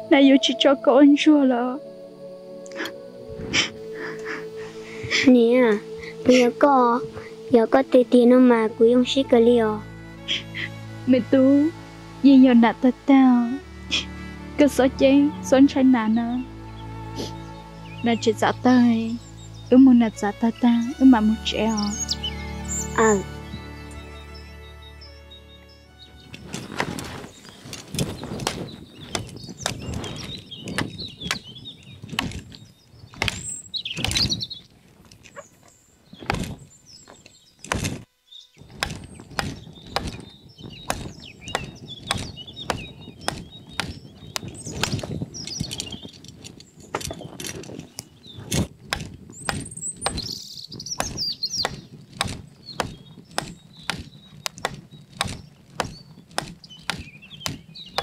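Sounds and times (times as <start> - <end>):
birds chirping: 0.0 - 58.0
sharp knocks: 32.1 - 32.5, 33.2 - 34.3, 36.2 - 36.6, 37.6 - 45.1, 48.5 - 50.4, 51.0 - 58.0.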